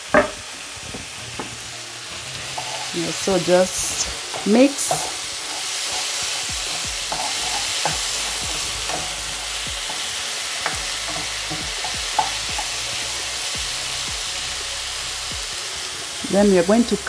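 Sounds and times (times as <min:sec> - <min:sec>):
vegetables sizzling in a pot: 0:00.0 - 0:17.0
wooden spoon scraping a pot: 0:02.2 - 0:03.2, 0:03.9 - 0:10.1.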